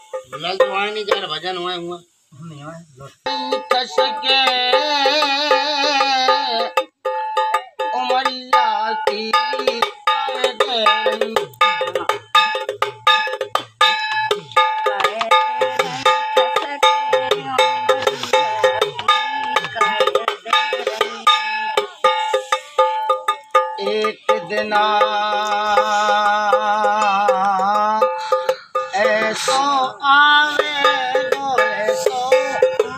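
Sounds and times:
steel canister hand drum: 0:00.0 - 0:01.6, 0:03.3 - 0:32.9
steady held tone: 0:07.1 - 0:32.9.

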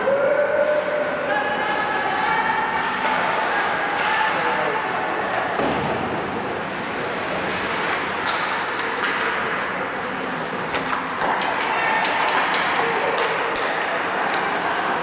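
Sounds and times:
skates scraping on ice: 0:00.4 - 0:15.0
sticks and puck clicking: 0:07.9 - 0:09.7, 0:10.7 - 0:14.5.

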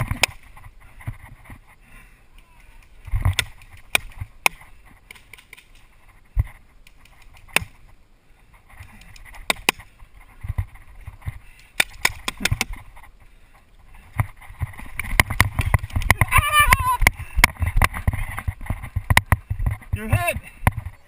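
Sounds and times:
paintball markers firing: 0:11.8 - 0:12.7.

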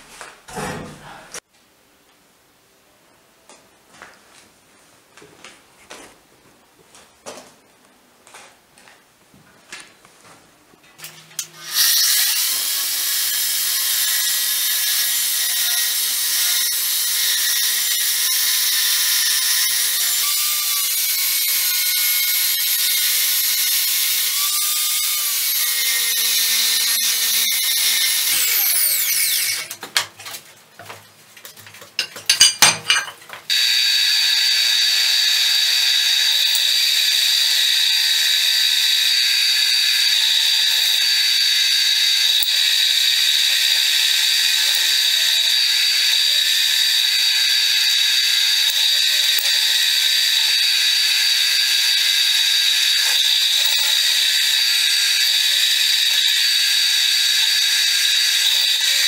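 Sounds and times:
angle grinder cutting steel: 0:11.4 - 0:29.8, 0:33.5 - 0:59.0
drill press drilling steel: 0:11.5 - 0:29.7, 0:33.5 - 0:59.0.

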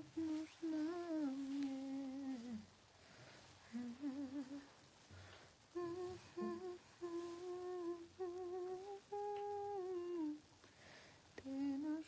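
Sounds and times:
woman humming a slow melody: 0:00.0 - 0:02.7, 0:03.7 - 0:04.8, 0:05.7 - 0:10.5, 0:11.4 - 0:12.0.

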